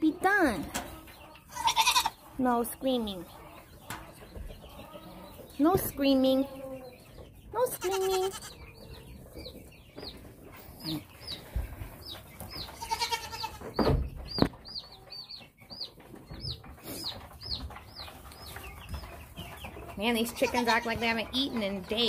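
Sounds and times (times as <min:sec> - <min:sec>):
chicks peeping: 0:00.0 - 0:22.0
goat bleating: 0:01.5 - 0:02.2, 0:07.7 - 0:08.6, 0:12.8 - 0:13.6, 0:20.3 - 0:21.0.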